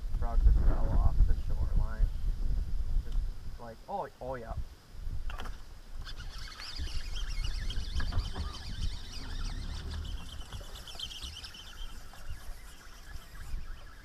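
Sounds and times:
birds chirping and singing: 6.0 - 14.0.

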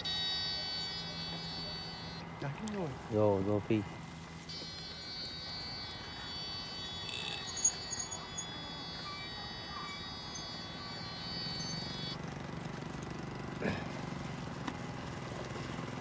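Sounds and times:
high-pitched electronic whine: 0.0 - 12.2
short electronic chirps and ticks: 4.4 - 12.2.

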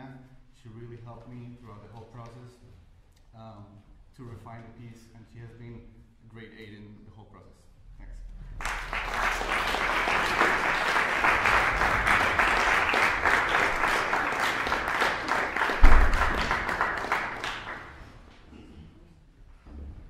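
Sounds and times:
audience applauding: 8.5 - 18.2
low thump: 15.8 - 16.4.

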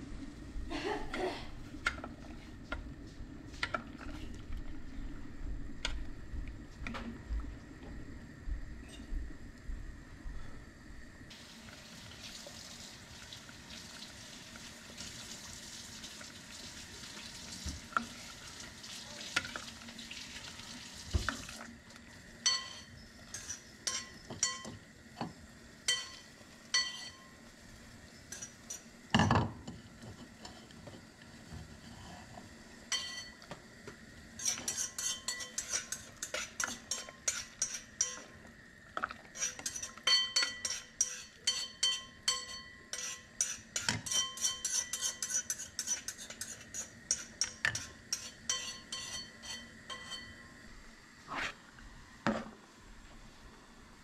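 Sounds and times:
simmering broth hiss: 7.6 - 42.1, 42.9 - 54.0
spoon taps and clinks stirring: 22.4 - 24.8, 25.9 - 27.4, 32.9 - 33.4, 34.4 - 38.2, 39.6 - 50.4.

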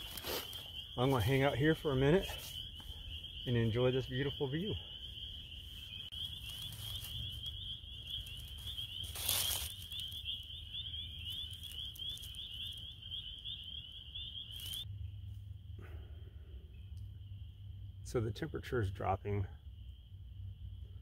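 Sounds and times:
high steady trilling call: 0.0 - 14.9
low steady rumble: 14.8 - 21.0.

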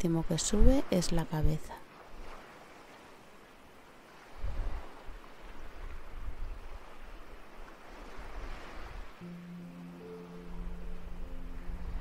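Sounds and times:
waves washing in and out: 0.0 - 12.0
soft held music notes: 9.2 - 12.0.

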